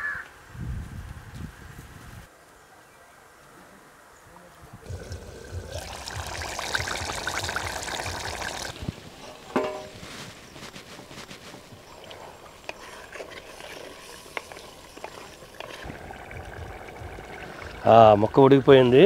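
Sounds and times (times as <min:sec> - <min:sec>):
curry bubbling in a pot: 0:04.8 - 0:08.8, 0:11.8 - 0:18.2.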